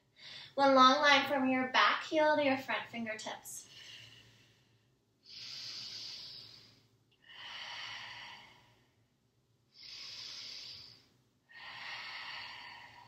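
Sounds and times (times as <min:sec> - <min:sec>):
woman breathing slowly: 0:00.0 - 0:00.6, 0:03.6 - 0:13.0.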